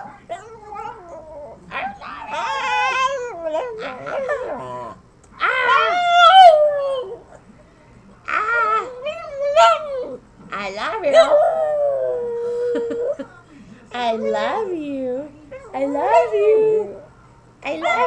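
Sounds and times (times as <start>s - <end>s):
small dog howling and whining: 0.3s - 7.2s, 8.3s - 10.2s.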